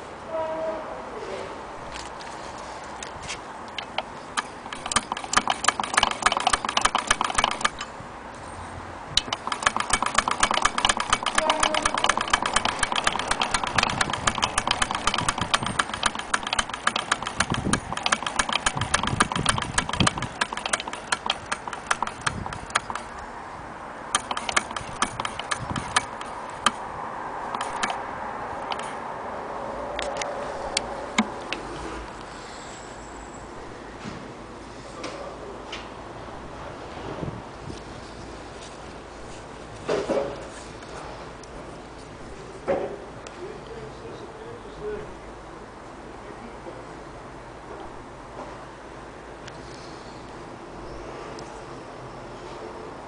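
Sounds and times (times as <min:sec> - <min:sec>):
sewing machine clattering: 0:03.8 - 0:07.9, 0:09.2 - 0:23.1, 0:24.1 - 0:26.8, 0:27.5 - 0:28.0.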